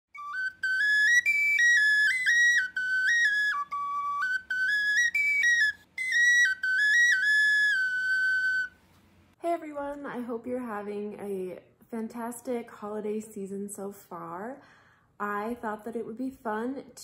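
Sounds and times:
lively whistle or flute melody: 0:00.1 - 0:08.9.

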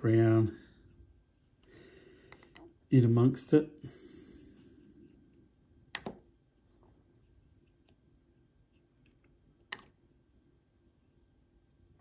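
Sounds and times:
paint brush scratching: 0:00.2 - 0:01.6, 0:07.0 - 0:09.1.

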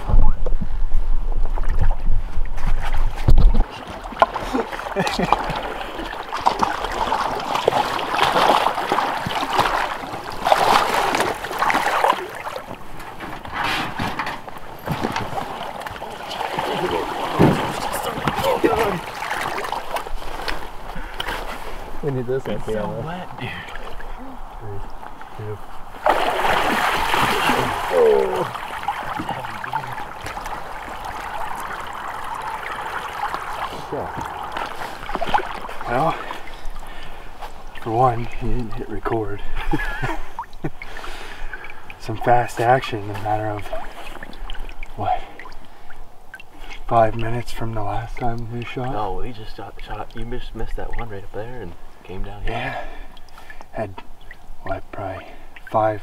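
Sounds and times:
water sloshing and splashing: 0:00.0 - 0:56.0.

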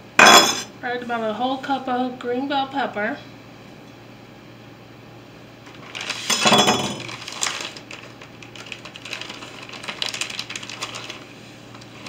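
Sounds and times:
plastic bag crinkling: 0:05.6 - 0:12.0.

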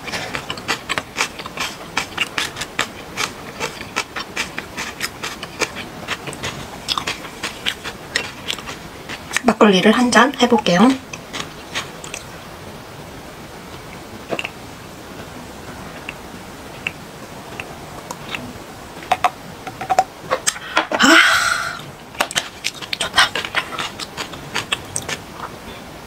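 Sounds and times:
swallowing and mouth clicks: 0:00.0 - 0:09.5, 0:11.0 - 0:12.3, 0:13.8 - 0:14.6, 0:16.0 - 0:16.2, 0:16.8 - 0:20.7, 0:22.2 - 0:25.6
person sighing ah: 0:20.5 - 0:21.9.

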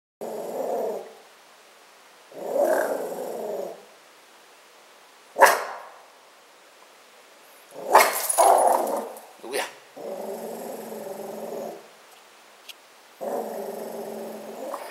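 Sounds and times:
dog growling: 0:00.2 - 0:01.1, 0:02.3 - 0:03.8, 0:07.7 - 0:11.9, 0:13.2 - 0:14.9
dog barking: 0:05.4 - 0:06.0, 0:07.9 - 0:09.0.

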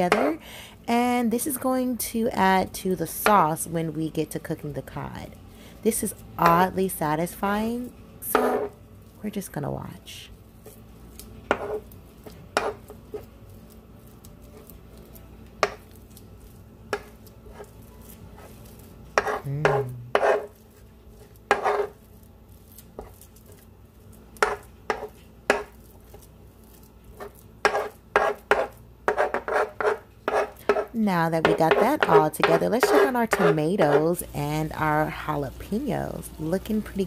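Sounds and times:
spoon scraping cutting board: 0:08.2 - 0:08.8, 0:11.5 - 0:13.3, 0:16.9 - 0:20.6, 0:21.2 - 0:22.0, 0:27.1 - 0:34.2.

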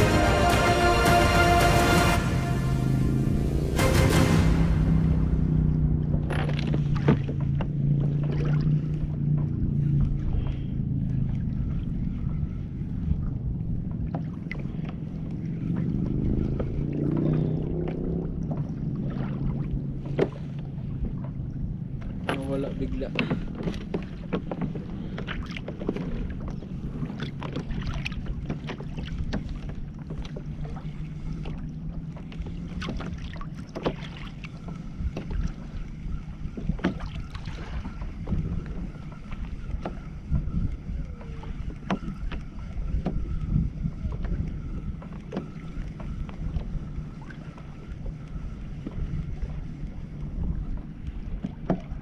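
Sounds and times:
water against kayak hull: 0:00.0 - 0:52.0
wind noise on microphone: 0:34.7 - 0:52.0.

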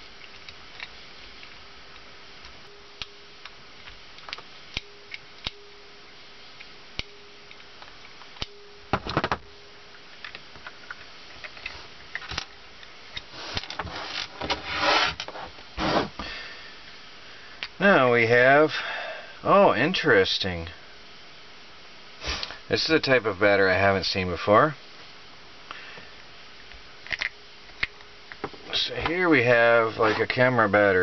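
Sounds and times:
clatter of plastic parts: 0:08.9 - 0:09.4, 0:27.0 - 0:28.7
plastic parts rattling: 0:27.0 - 0:27.9.

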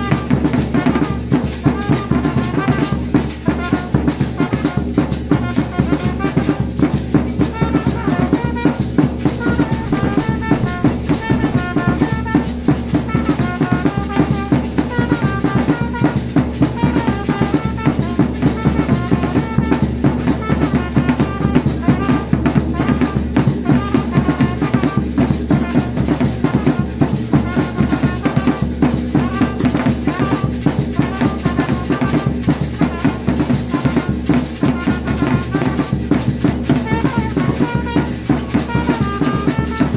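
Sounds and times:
brass horns playing melody: 0:00.0 - 0:39.9
large drums beating: 0:00.0 - 0:39.9.

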